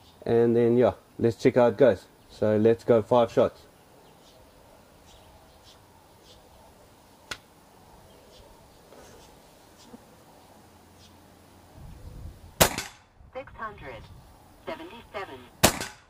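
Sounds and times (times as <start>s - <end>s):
faint bird chirps: 3.7s - 11.3s
air pistol shot: 12.6s - 13.0s, 15.6s - 16.0s.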